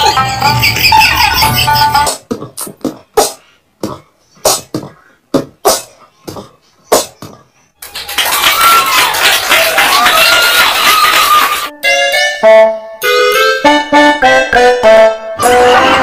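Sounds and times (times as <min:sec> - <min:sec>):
background music: 0:11.7 - 0:16.0.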